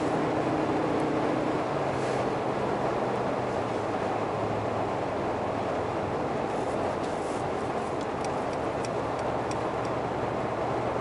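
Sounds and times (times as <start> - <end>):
light ticks: 8.0 - 10.0.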